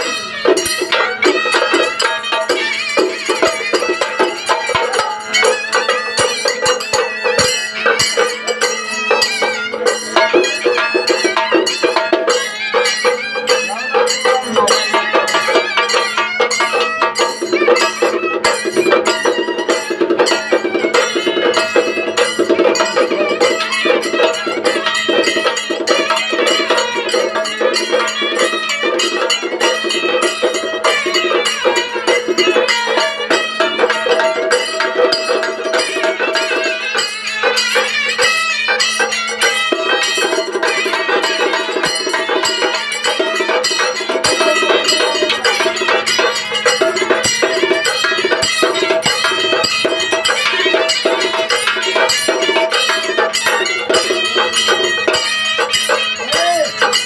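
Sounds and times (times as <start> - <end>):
steady held note: 0.0 - 16.8
fast percussion strokes: 0.0 - 57.0.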